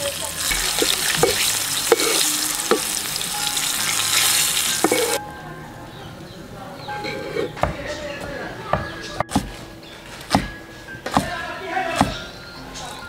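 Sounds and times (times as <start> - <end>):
food sizzling in hot oil: 0.0 - 5.2.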